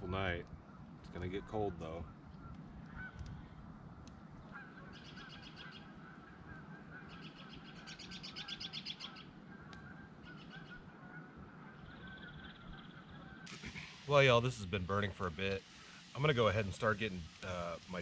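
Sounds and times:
wood fire crackling: 0:00.0 - 0:05.2, 0:11.8 - 0:18.0
bird calls in rapid runs: 0:00.5 - 0:15.0.

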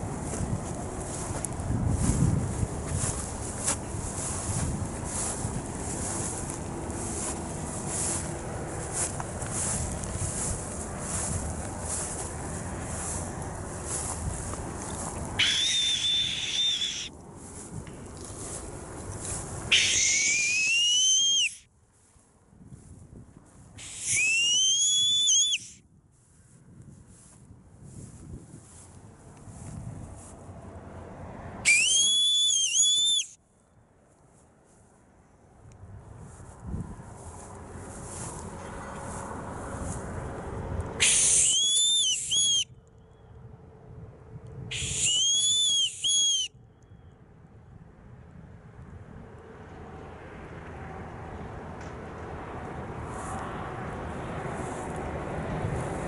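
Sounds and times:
low wind rumble: 0:00.0 - 0:56.0
boatswain's whistle blasts: 0:15.4 - 0:17.1, 0:19.7 - 0:21.6, 0:23.8 - 0:25.8, 0:31.7 - 0:33.4, 0:41.0 - 0:42.7, 0:44.7 - 0:46.5.

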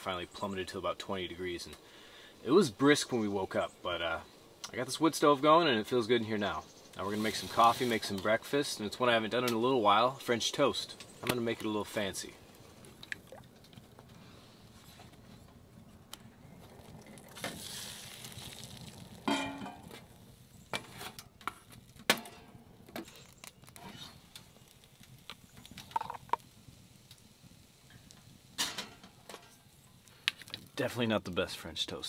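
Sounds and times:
faint sizzle in a pan: 0:00.0 - 0:32.0
metal pots and utensils clinking: 0:19.2 - 0:20.0, 0:28.6 - 0:29.5.

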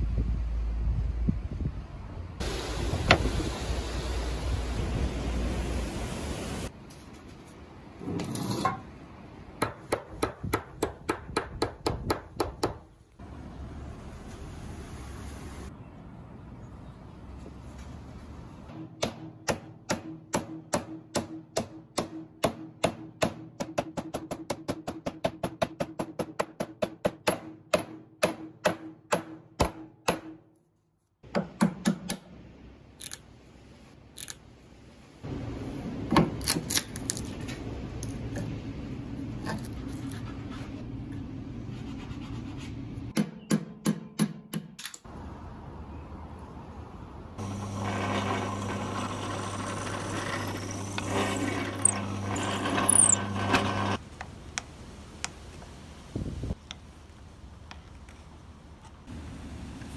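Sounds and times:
steady mechanical noise: 0:47.4 - 0:54.0.

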